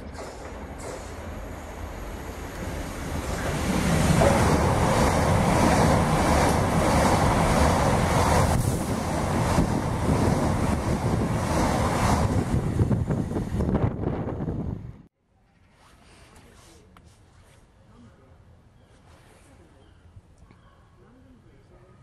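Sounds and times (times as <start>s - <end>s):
train passing at speed: 0.0s - 15.1s.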